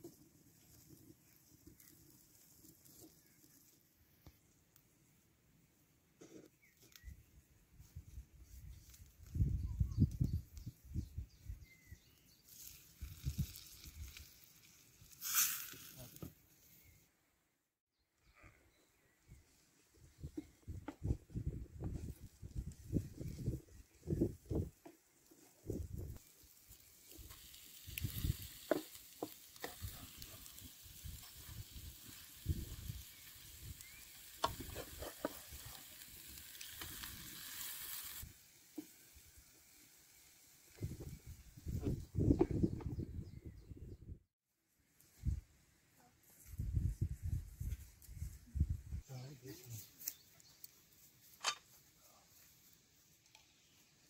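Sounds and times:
short hiss: 15.1 - 16.3, 29.8 - 40.4
omelette sizzling in a frying pan: 26.1 - 40.9
wind buffeting microphone: 40.8 - 44.2.

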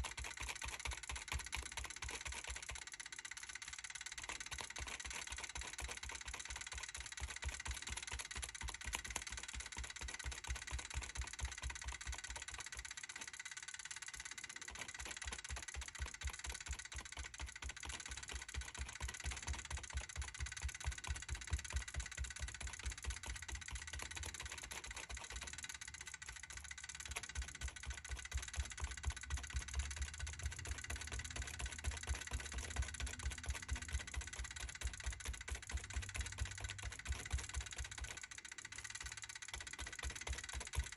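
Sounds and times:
stencil brush dabbing paint: 14.7 - 38.2.

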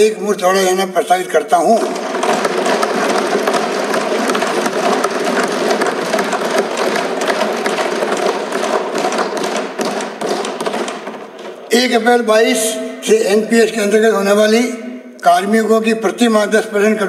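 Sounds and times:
desk thumping applause: 1.6 - 13.4.

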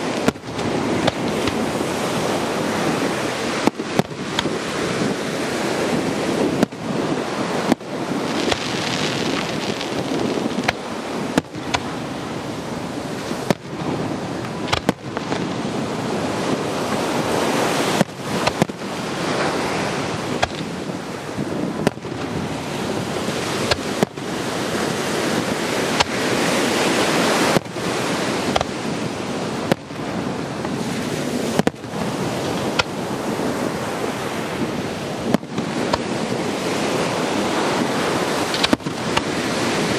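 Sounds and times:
fireworks bangs: 0.0 - 39.9
ocean surf: 0.0 - 39.9
wind on microphone: 0.0 - 39.9.

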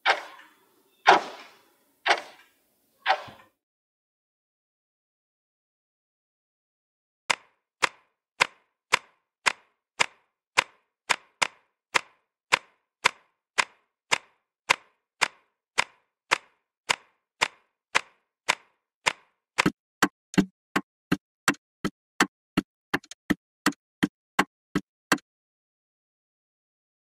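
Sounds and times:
sharp ticking clicks: 7.3 - 23.8.

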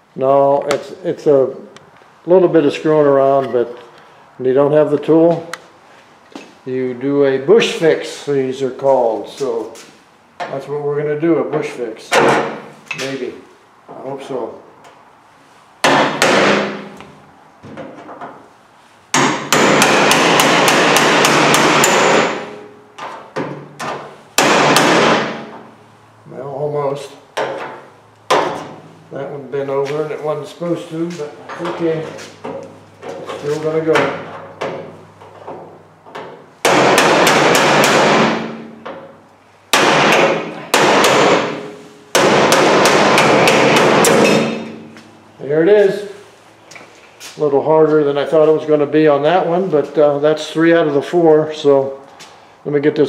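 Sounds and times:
hammer striking chisel on metal: 15.8 - 16.9, 19.1 - 22.7, 24.4 - 25.4, 36.2 - 39.0, 39.7 - 45.0
metal cabinet ringing: 39.8 - 45.0.

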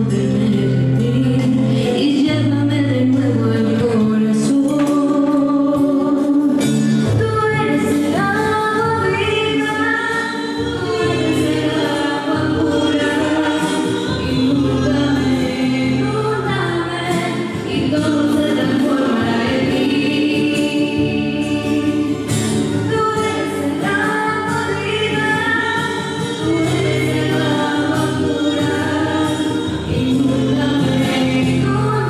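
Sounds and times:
choir singing a hymn: 10.2 - 22.5, 25.2 - 32.0.

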